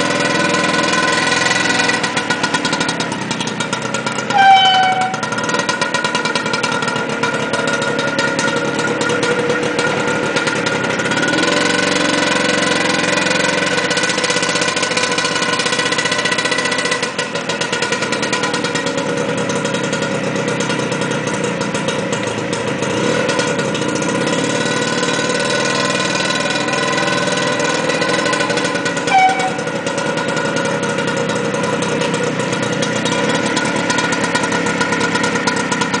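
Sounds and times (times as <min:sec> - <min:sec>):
small engine running at low revs: 0:00.0 - 0:36.0
short high beep: 0:04.3 - 0:05.4, 0:29.1 - 0:29.8.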